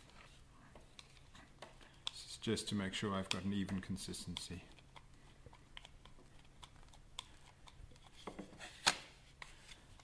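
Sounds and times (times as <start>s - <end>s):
palette knife scraping clay: 3.2s - 10.0s.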